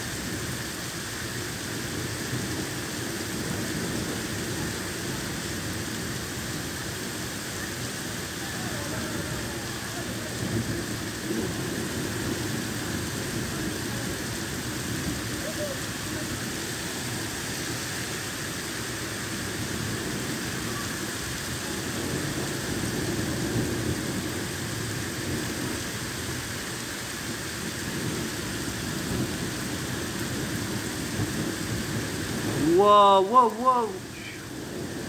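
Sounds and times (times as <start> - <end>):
heavy rain on pavement: 0.0 - 35.0.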